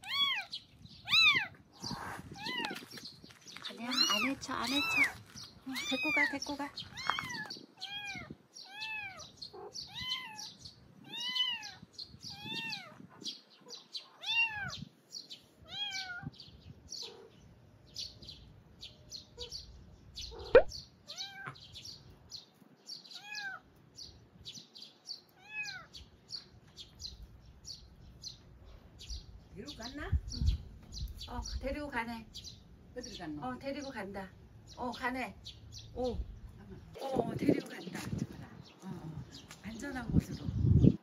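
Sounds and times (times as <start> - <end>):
small birds chirping faintly: 0.0 - 41.0
kitten mewing: 20.3 - 21.6.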